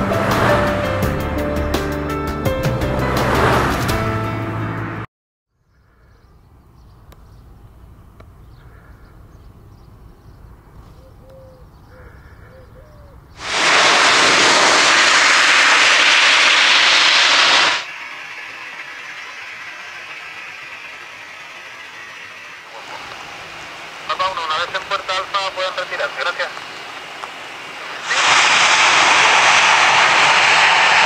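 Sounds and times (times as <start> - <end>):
loud jet engine noise: 0.0 - 2.0, 2.9 - 5.1, 13.4 - 31.0
distant jet engine noise: 13.4 - 31.0
jet engine rumble: 13.4 - 31.0.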